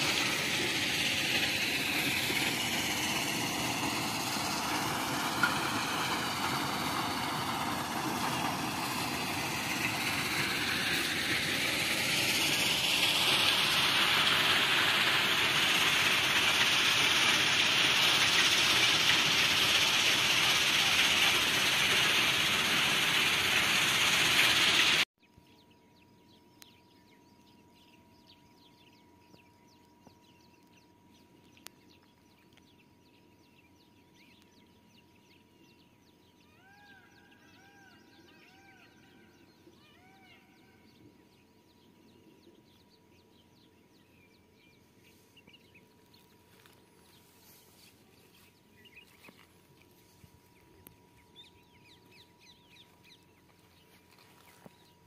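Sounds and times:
loud rushing hiss: 0.0 - 25.1.

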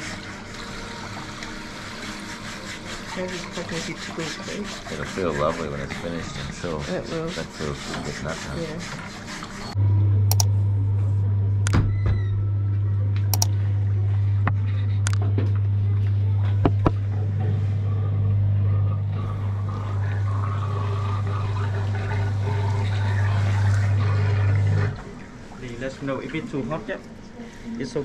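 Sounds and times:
chair motor humming: 0.0 - 25.2
sharp clicks: 13.3 - 13.5.

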